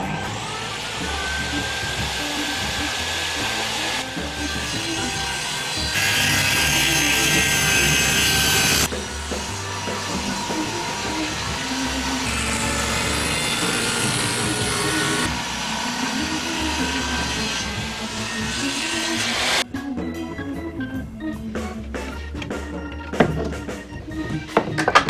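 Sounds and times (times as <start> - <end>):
saw blade cutting wood: 0.0 - 19.6
table saw whining: 0.0 - 19.6.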